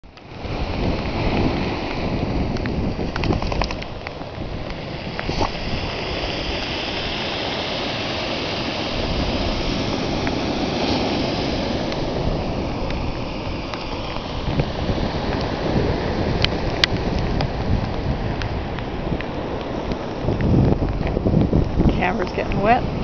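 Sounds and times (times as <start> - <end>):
rain falling: 0.0 - 23.0
waves breaking on a beach: 0.0 - 23.0.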